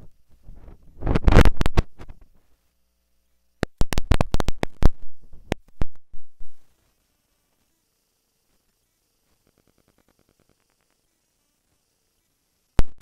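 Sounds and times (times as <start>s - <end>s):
sharp clicks and taps: 3.6s - 6.0s.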